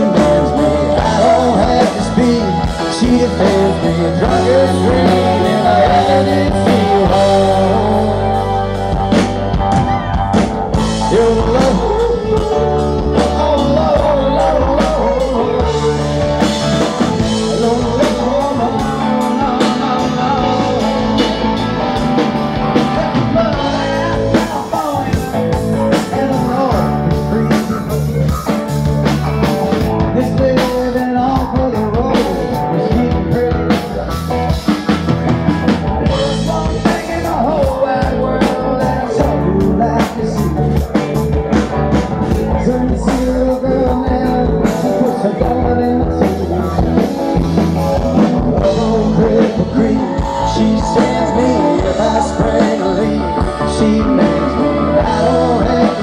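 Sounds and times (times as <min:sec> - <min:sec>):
man singing: 0:00.0 - 0:09.7, 0:10.3 - 0:56.0
drum kit: 0:00.0 - 0:56.0
electric guitar: 0:00.0 - 0:56.0
keyboard: 0:00.0 - 0:56.0.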